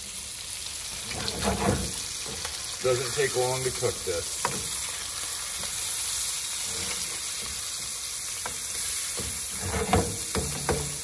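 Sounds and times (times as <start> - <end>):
fish sizzling in a frying pan: 0.0 - 11.0
spatula scraping a pan: 0.9 - 2.6, 4.3 - 11.0.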